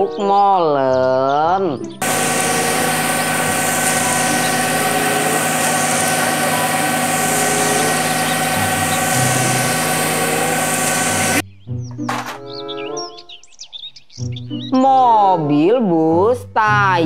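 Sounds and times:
diesel truck engine running: 2.0s - 11.4s
mixer drum mechanical rumble: 2.0s - 11.4s.

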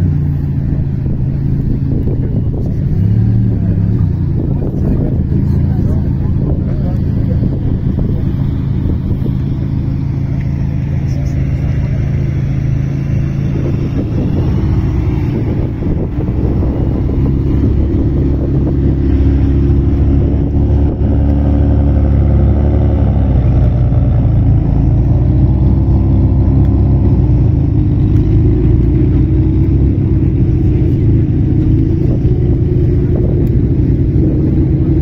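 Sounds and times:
car engine idling: 0.0s - 35.0s.

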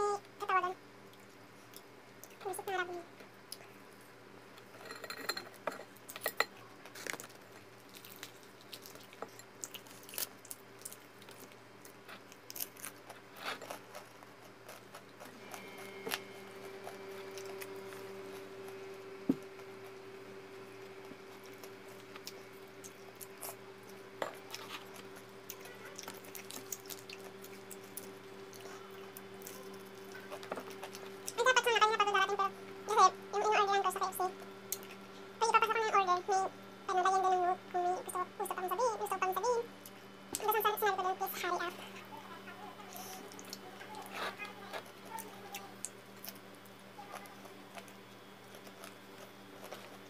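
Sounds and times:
steady hum: 0.0s - 50.0s
chewing: 5.9s - 32.0s, 34.4s - 35.2s, 39.8s - 50.0s.

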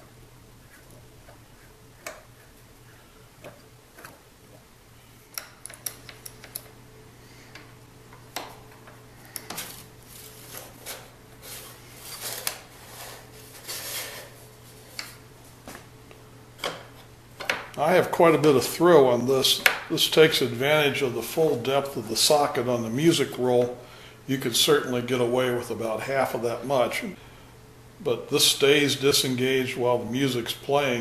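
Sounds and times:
small clicks and knocks: 5.3s - 6.8s.

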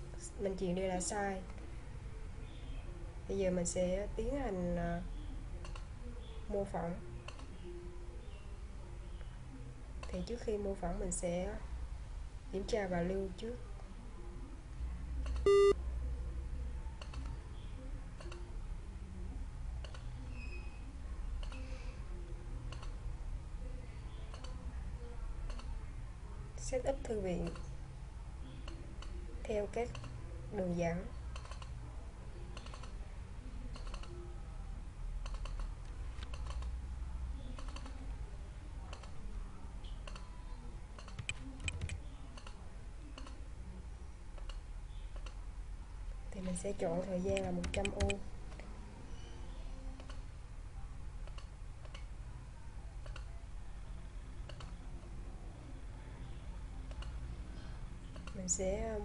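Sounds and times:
low steady hum: 0.0s - 59.0s
faint mouse clicks: 5.6s - 5.9s, 7.2s - 7.7s, 17.0s - 17.4s, 18.2s - 18.5s, 19.8s - 20.1s, 21.4s - 21.8s, 22.7s - 23.0s, 24.2s - 24.6s, 25.4s - 25.8s, 29.9s - 30.2s, 32.5s - 33.0s, 33.7s - 34.2s, 35.2s - 36.8s, 37.4s - 38.0s, 38.9s - 39.2s, 39.8s - 40.4s, 41.0s - 43.4s, 44.4s - 45.4s, 49.9s - 50.3s, 51.2s - 52.1s, 53.0s - 53.3s, 54.4s - 54.8s, 56.8s - 57.2s, 58.0s - 58.4s
computer alert beep: 15.4s - 15.8s.

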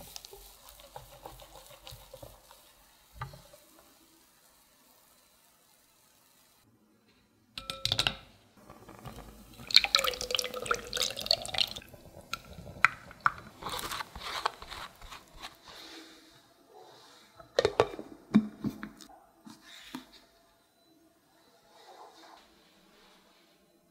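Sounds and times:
batter splashing and dripping: 0.0s - 5.2s, 9.5s - 13.9s
bowl and sieve clinking: 7.6s - 14.0s.

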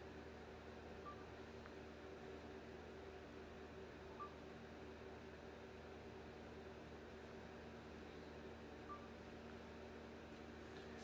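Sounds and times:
faint room hum: 0.0s - 11.0s.

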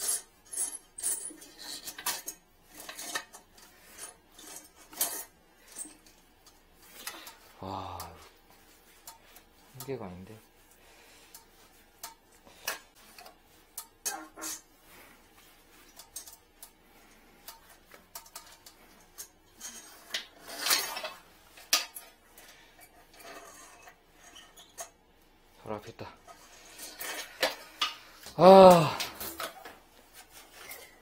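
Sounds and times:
tools clicking and clinking: 0.0s - 8.2s, 15.8s - 16.8s, 17.4s - 25.0s.

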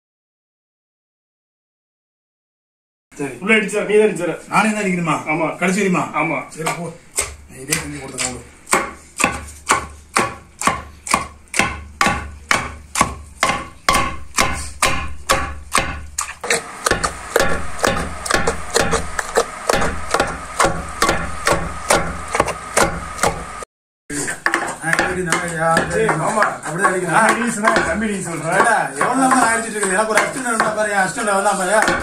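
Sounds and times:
wooden pestle pounding in mortar: 6.6s - 23.5s, 24.4s - 32.0s.

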